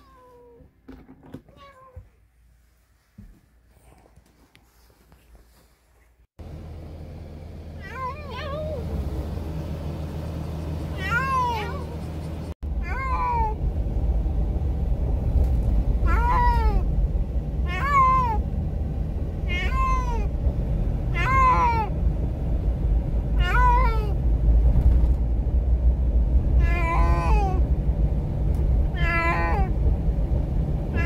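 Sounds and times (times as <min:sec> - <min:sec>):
moving car rumble: 0:06.4 - 0:31.0
cat meowing: 0:07.8 - 0:08.8, 0:11.0 - 0:12.0, 0:12.8 - 0:13.6, 0:16.0 - 0:16.8, 0:17.7 - 0:18.4, 0:19.5 - 0:20.3, 0:21.1 - 0:21.9, 0:23.4 - 0:24.2, 0:26.6 - 0:27.6, 0:28.9 - 0:29.7.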